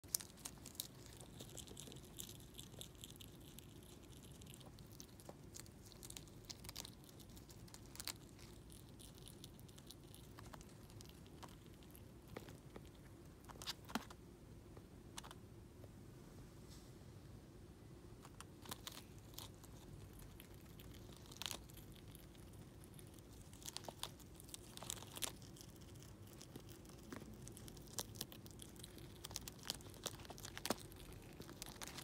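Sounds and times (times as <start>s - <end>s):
squirrel chewing crunching: 0.0s - 15.4s, 18.1s - 32.0s.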